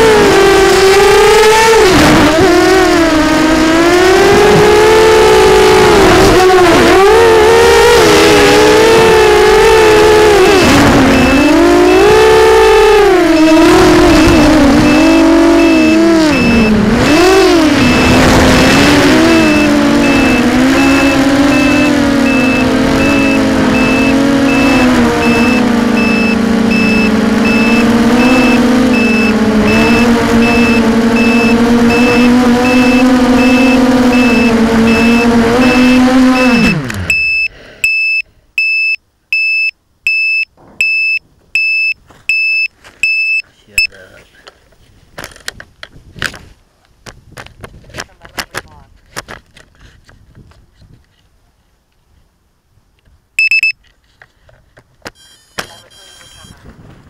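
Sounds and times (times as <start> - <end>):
drone motors whining: 0.0 - 38.2, 55.1 - 56.6
electronic beeper: 8.2 - 44.0, 53.4 - 53.8, 55.2 - 56.6.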